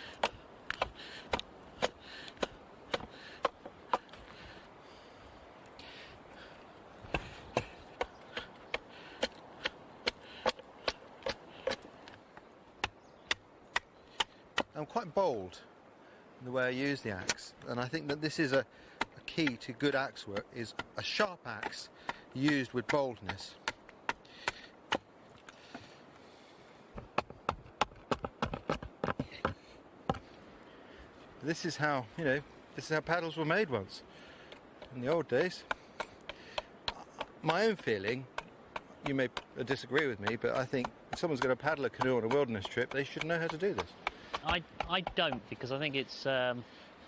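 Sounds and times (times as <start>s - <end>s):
axe chopping wood: 0.2s - 4.1s, 7.0s - 11.9s, 17.2s - 19.6s, 20.2s - 25.0s, 27.0s - 30.2s, 34.8s - 45.6s
axe striking wood: 35.4s - 45.5s.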